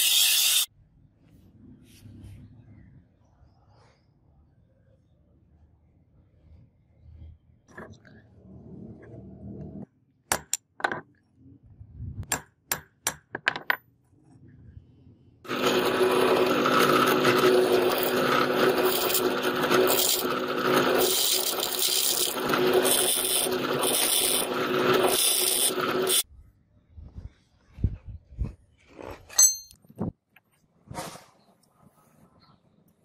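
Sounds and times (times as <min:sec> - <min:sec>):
electric drill boring steel: 0:00.0 - 0:00.7, 0:15.5 - 0:26.2.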